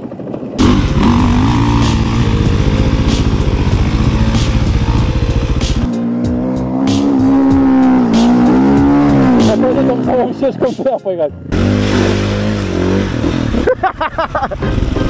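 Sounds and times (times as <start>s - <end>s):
loud steady dirt bike engine: 0.0s - 15.0s
dirt bike engine revving: 0.6s - 10.5s, 11.5s - 15.0s.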